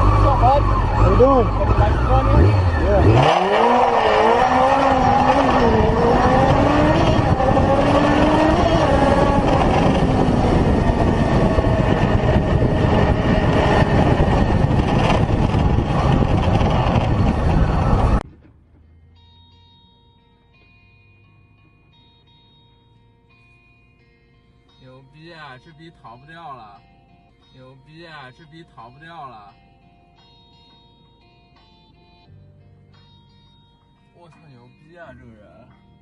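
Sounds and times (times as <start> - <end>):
motorcycle engine revving: 0.0 - 18.5
wind rushing over microphone: 3.4 - 18.2.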